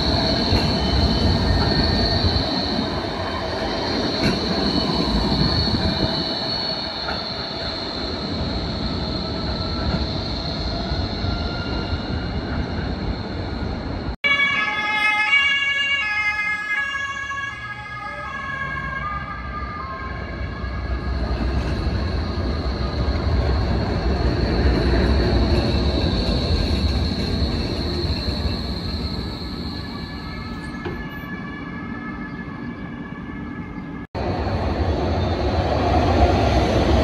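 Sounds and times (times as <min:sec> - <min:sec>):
high wheel squeal: 0:00.0 - 0:13.8, 0:20.7 - 0:31.5
tram rumbling on rails: 0:00.0 - 0:37.0.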